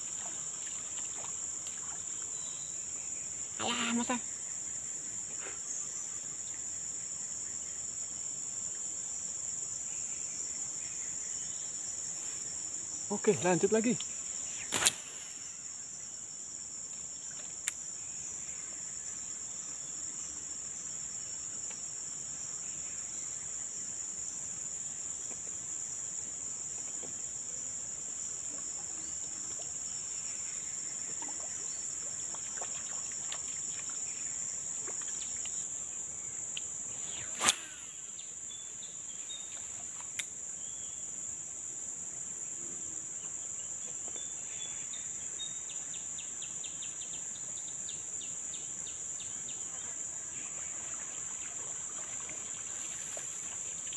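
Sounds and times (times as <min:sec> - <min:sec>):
high-pitched insect chorus: 0:00.0 - 0:53.9
short sharp clicks: 0:37.3 - 0:37.8.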